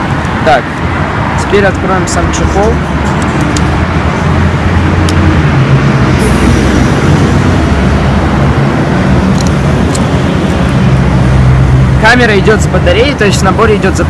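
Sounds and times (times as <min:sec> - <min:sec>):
low mechanical rumble: 0:02.8 - 0:12.1.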